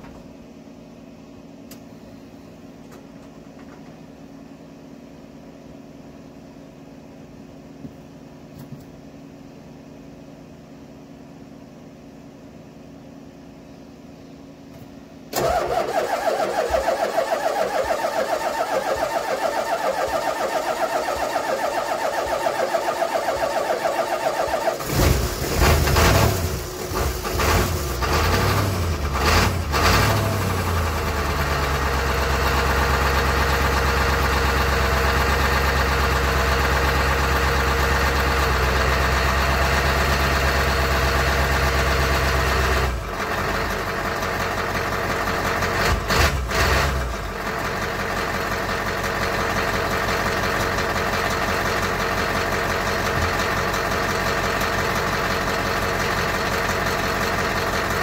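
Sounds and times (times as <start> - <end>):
diesel engine idling: 15.3 - 58.0
engine revving blips: 15.4 - 30.9.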